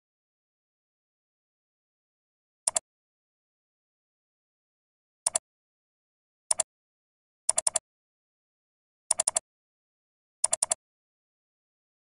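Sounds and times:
computer mouse clicks: 7.5s - 7.8s, 9.1s - 9.4s, 10.4s - 10.8s.

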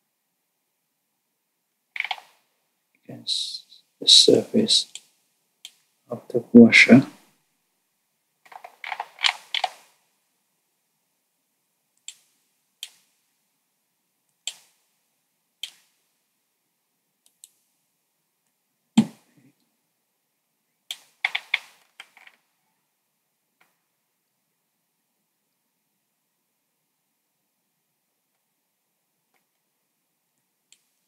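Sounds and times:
mouse and keyboard clicks: 2.0s - 2.4s, 8.5s - 9.9s, 12.0s - 13.0s, 14.5s - 14.7s, 20.9s - 22.4s.

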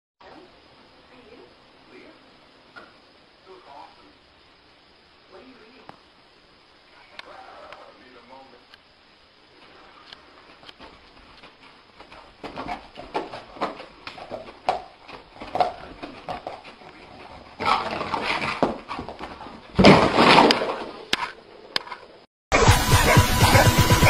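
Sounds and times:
loud burst of noise: 22.5s - 24.0s.

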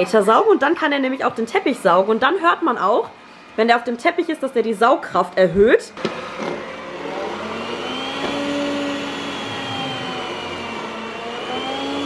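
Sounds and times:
robot vacuum motor whir: 6.0s - 12.0s.

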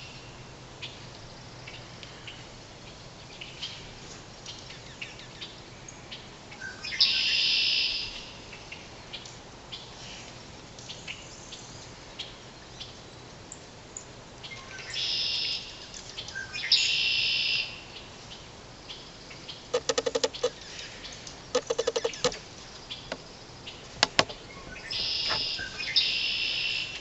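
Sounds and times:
songbird singing buzzy trill: 14.4s - 27.0s.

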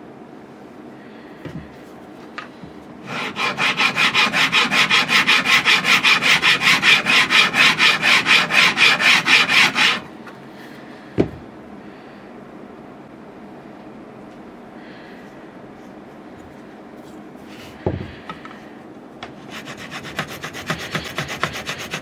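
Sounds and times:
file strokes on metal: 3.0s - 10.1s, 19.4s - 22.0s.

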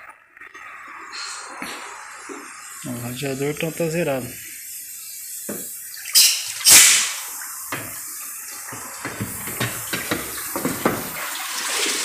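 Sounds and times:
water splashing and sloshing: 5.5s - 12.0s.

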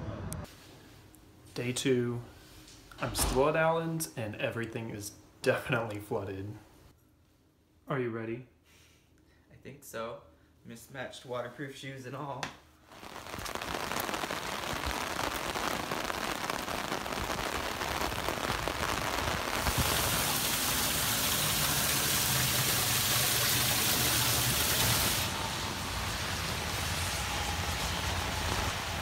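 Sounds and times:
rain falling: 12.9s - 29.0s.

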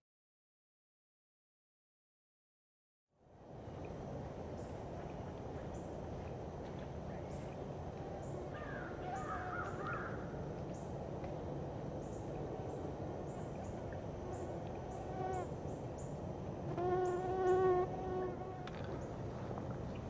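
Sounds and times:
insects chirping: 4.4s - 11.0s
birds calling: 8.3s - 10.9s.

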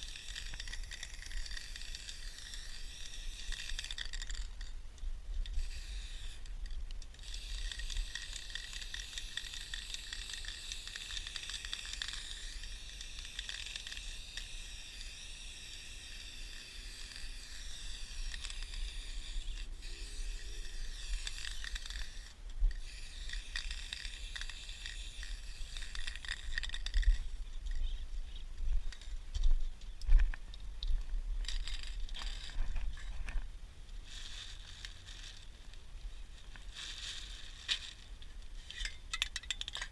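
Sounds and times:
spray paint can hissing: 0.0s - 4.7s, 5.5s - 6.5s, 7.1s - 27.4s.

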